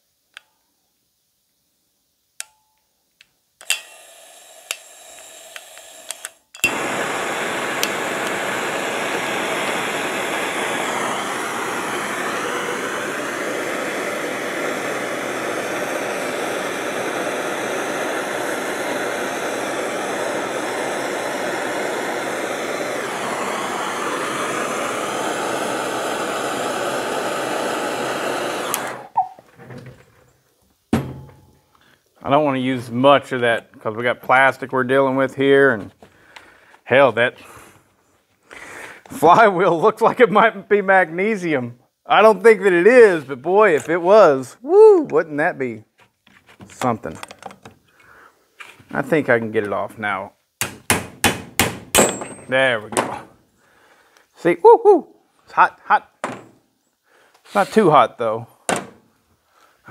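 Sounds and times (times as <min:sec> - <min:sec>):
torch ignition click: 0:03.6 - 0:29.3
gas hissing: 0:03.6 - 0:29.4, 0:57.1 - 0:58.9
gas torch flame rushing: 0:03.6 - 0:29.4, 0:57.4 - 0:58.0.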